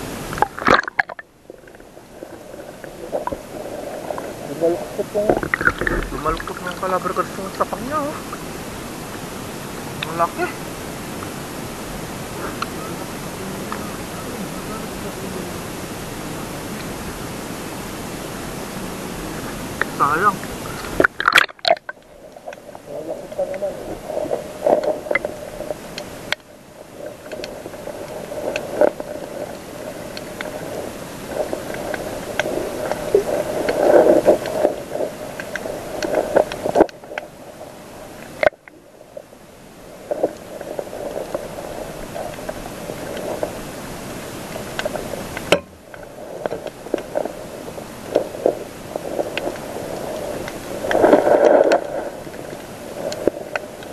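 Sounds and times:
underwater water churning: 0.0s - 53.9s
small underwater clicks and knocks: 0.3s - 8.5s, 19.8s - 53.9s.

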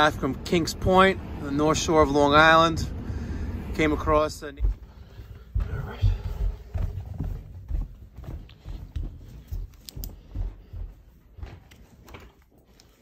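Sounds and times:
footsteps walking: 3.7s - 13.0s.

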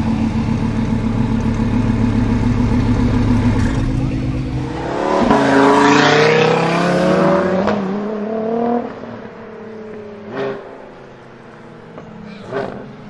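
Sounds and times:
fainter engine revving: 0.0s - 9.0s
sports car accelerating hard: 0.0s - 13.0s.

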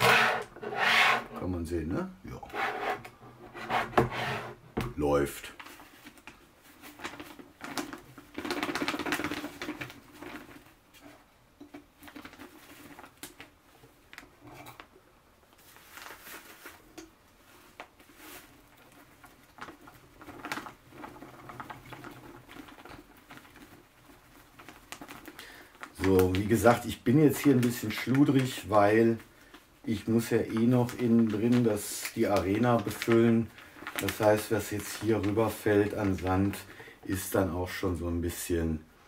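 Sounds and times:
plastic bag crinkling: 5.4s - 11.1s, 11.8s - 14.8s, 15.5s - 37.8s.

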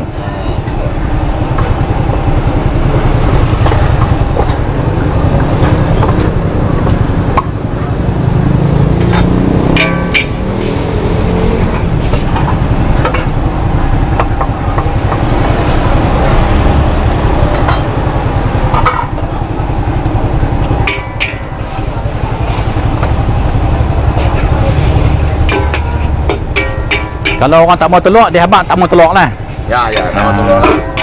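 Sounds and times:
metal spatula scraping wok: 9.8s - 13.4s, 20.8s - 27.6s, 29.3s - 31.0s
noodles sizzling in a wok: 18.2s - 27.4s.

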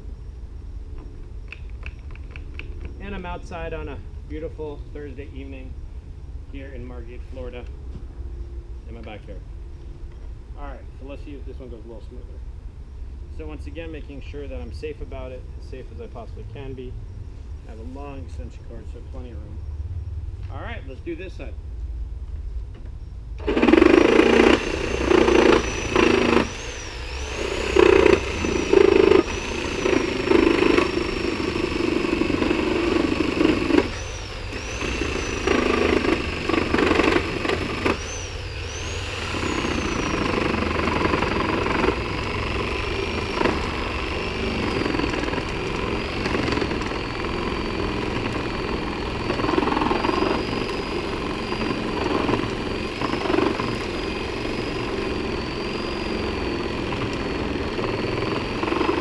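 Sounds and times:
reciprocating saw cutting wood: 23.4s - 59.0s.

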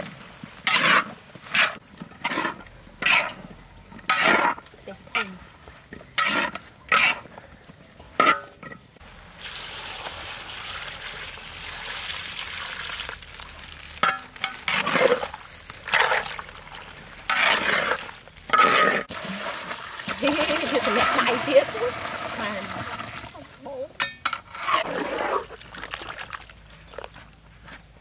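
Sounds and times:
water pouring into hot wok: 9.2s - 18.3s, 19.1s - 23.4s.

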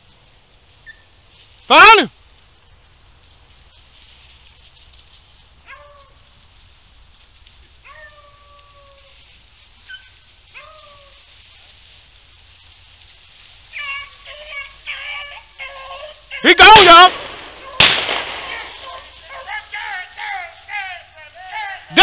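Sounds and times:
hunting dogs howling: 7.8s - 9.3s, 9.9s - 11.3s, 13.7s - 17.8s, 18.4s - 22.0s.

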